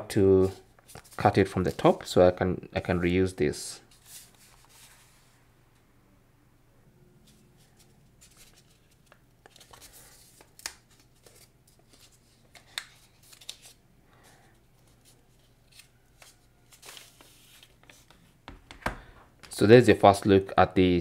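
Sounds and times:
paper wrap rustling and crinkling: 0:07.3 - 0:13.8, 0:14.8 - 0:18.1.

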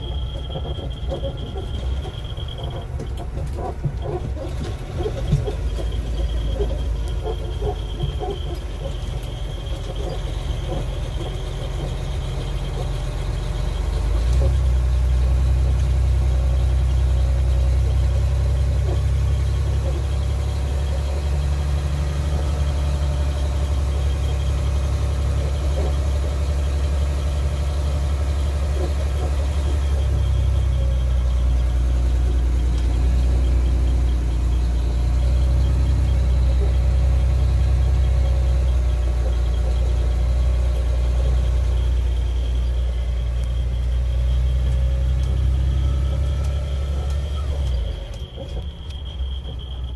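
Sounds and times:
diesel engine drone: 0:00.0 - 0:49.9.

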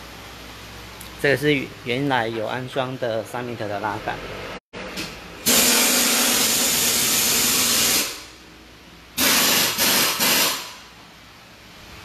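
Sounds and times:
compressed air hissing: 0:05.4 - 0:08.3, 0:09.2 - 0:10.8.

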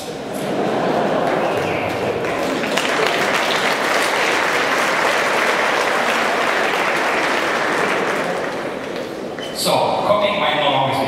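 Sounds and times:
audience applauding: 0:00.4 - 0:09.4.

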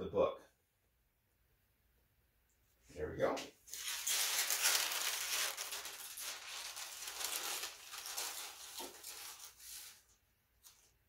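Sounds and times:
paper rubbing and rustling: 0:03.7 - 0:10.9.

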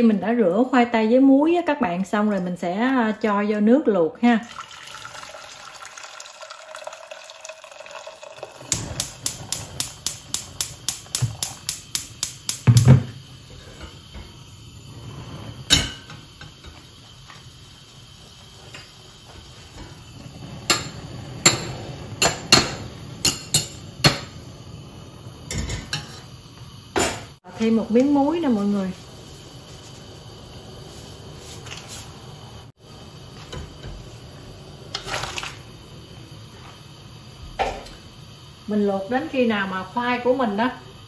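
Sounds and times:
water pouring into saucepan: 0:04.4 - 0:11.7, 0:34.2 - 0:36.1
gas lighter clicking: 0:08.7 - 0:12.8.

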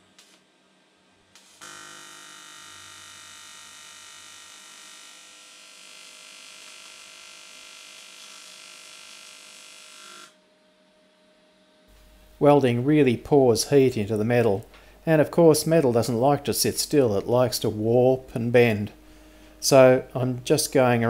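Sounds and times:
welding arc buzzing: 0:00.0 - 0:00.4, 0:01.3 - 0:10.4.

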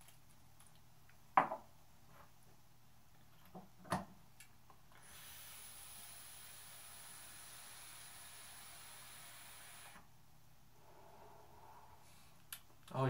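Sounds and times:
items knocking on wooden table: 0:01.4 - 0:01.7
e-cigarette hiss: 0:05.0 - 0:10.0.

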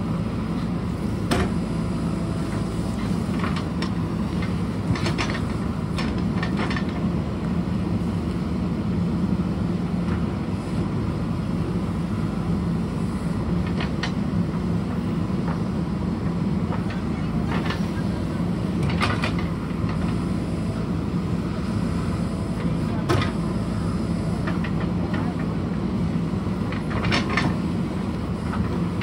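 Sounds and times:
diesel engine running under load: 0:00.0 - 0:29.0
knocks and clanks of digging: 0:03.0 - 0:07.0, 0:18.8 - 0:20.2, 0:23.0 - 0:23.4, 0:26.7 - 0:27.6.

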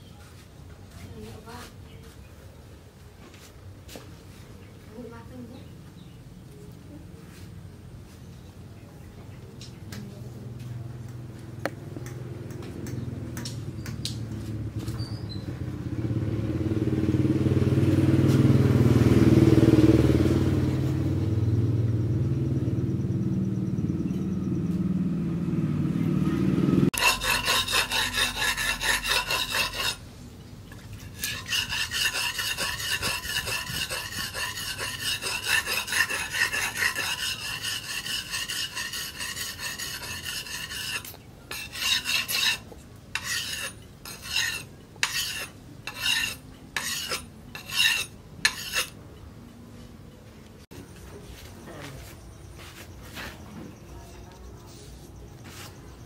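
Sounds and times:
low engine-like rumble: 0:09.2 - 0:27.0
blade sharpened on whetstone: 0:27.0 - 0:30.0, 0:31.0 - 0:49.0.

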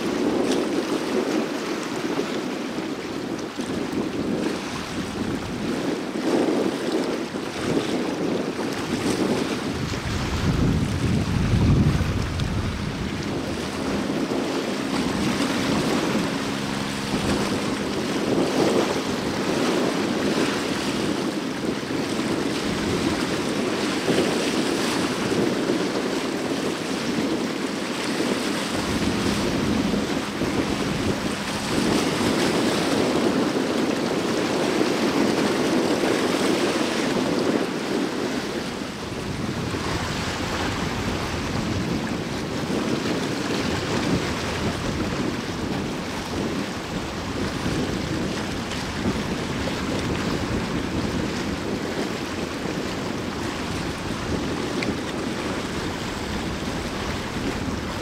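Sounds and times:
sea water washing: 0:00.0 - 0:58.0
wind buffeting microphone: 0:00.0 - 0:58.0
low hum: 0:10.1 - 0:23.1, 0:27.7 - 0:33.9.

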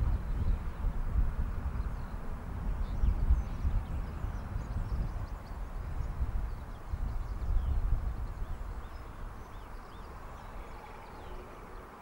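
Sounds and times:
low outdoor rumble: 0:00.0 - 0:12.0
faint bird chirps: 0:06.5 - 0:11.9.

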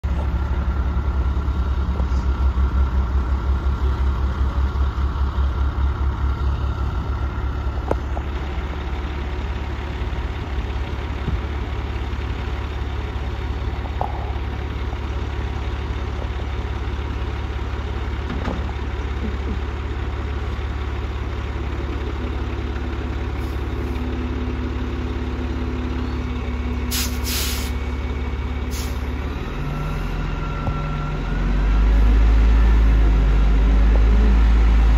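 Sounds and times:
diesel truck engine idling: 0:00.0 - 0:34.9
short air hisses: 0:26.9 - 0:27.8, 0:28.7 - 0:29.0.

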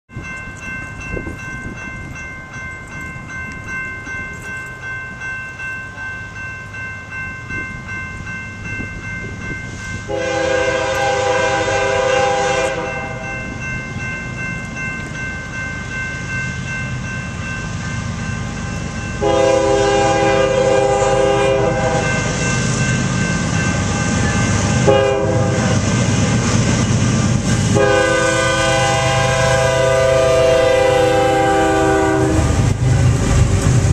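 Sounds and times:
crossing warning bell ringing: 0:00.1 - 0:33.9
train horn blasts: 0:10.1 - 0:13.4, 0:19.2 - 0:22.4, 0:24.8 - 0:25.9, 0:27.7 - 0:32.6.

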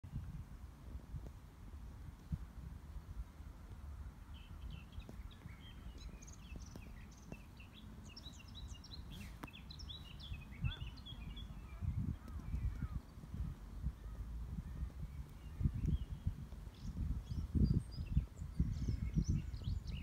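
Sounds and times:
songbird chirping: 0:02.0 - 0:20.0.

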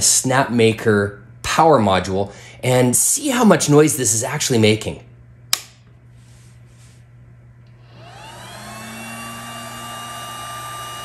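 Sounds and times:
cooling fan whining: 0:00.0 - 0:11.0
click: 0:05.5 - 0:05.8.

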